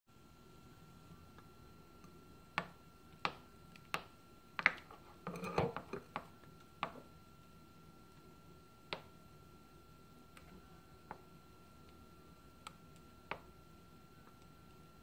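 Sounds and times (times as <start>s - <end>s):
spatula scraping glass bowl: 5.0s - 6.0s.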